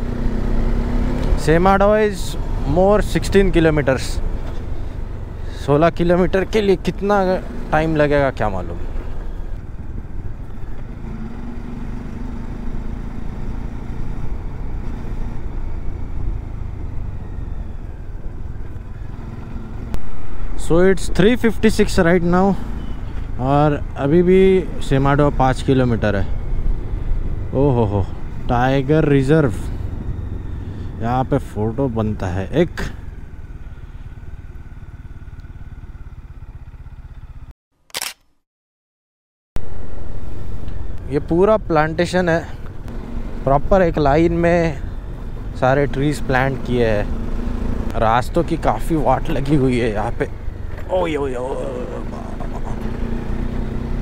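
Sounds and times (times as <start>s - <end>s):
motorcycle engine running: 0.0s - 37.5s, 39.6s - 54.0s
road and wind noise: 0.0s - 38.3s, 39.6s - 54.0s
motorcycle engine idling: 29.8s - 37.5s, 46.7s - 54.0s.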